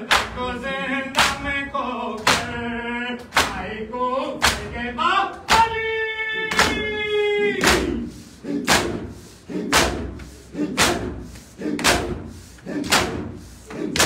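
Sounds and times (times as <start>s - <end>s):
hands slapping chests: 0.1s - 0.4s, 1.1s - 1.6s, 2.2s - 2.6s, 3.2s - 3.7s, 4.4s - 4.8s, 6.5s - 6.9s, 7.6s - 8.0s, 8.6s - 14.0s.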